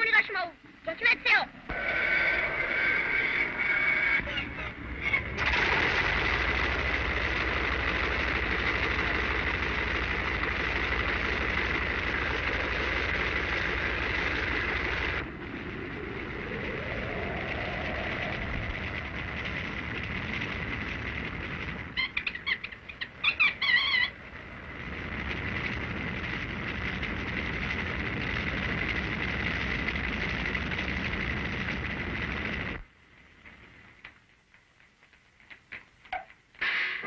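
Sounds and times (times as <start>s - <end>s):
low pulsing rumble: 0.0s - 34.1s
rising and falling tone: 1.5s - 28.0s
loud drone with high whistle: 1.5s - 32.8s.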